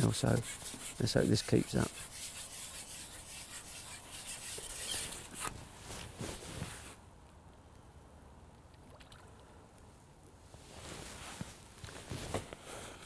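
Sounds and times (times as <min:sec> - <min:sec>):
rustling: 0:00.0 - 0:07.0, 0:10.5 - 0:13.0
faint outdoor hush: 0:09.2 - 0:13.0.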